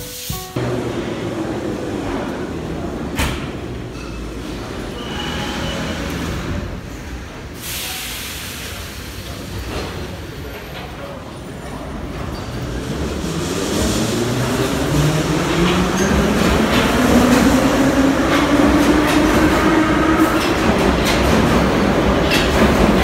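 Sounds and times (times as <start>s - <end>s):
sudden hiss: 7.6s - 9.6s.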